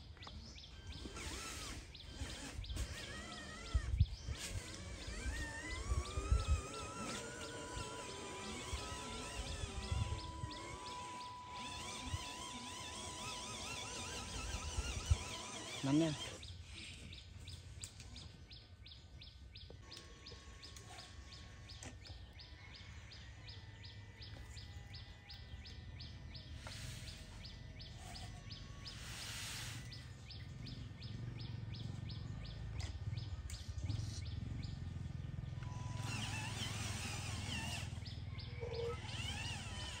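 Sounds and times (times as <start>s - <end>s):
birds chirping: 0.0s - 40.0s
toy truck motor hum: 0.1s - 17.3s, 19.7s - 40.0s
sand sliding out: 28.8s - 30.2s.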